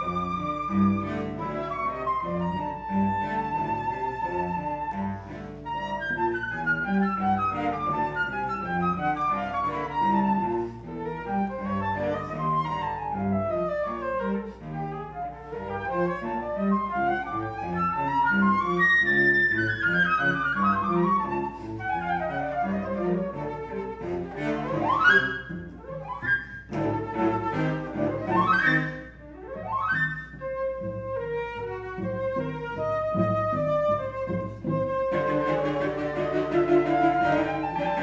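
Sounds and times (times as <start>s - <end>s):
cello playing low notes: 0.0s - 38.0s
flute playing fast runs: 0.0s - 38.0s.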